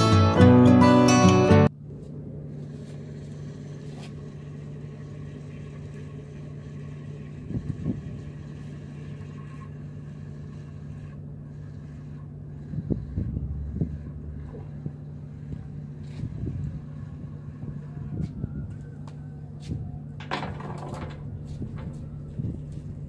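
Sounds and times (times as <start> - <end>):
boat engine humming: 0.0 - 23.0
low bumps: 12.5 - 23.0.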